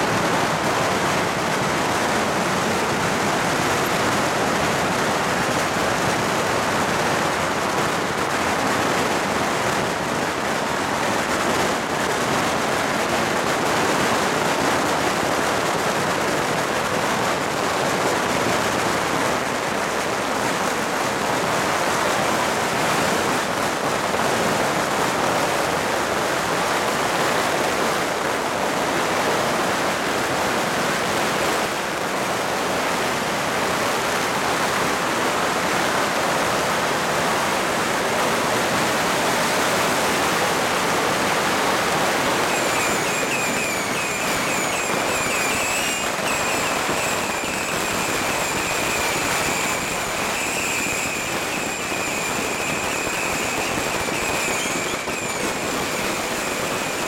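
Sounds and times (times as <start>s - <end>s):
firecrackers crackling: 0.0s - 27.5s, 41.8s - 57.0s.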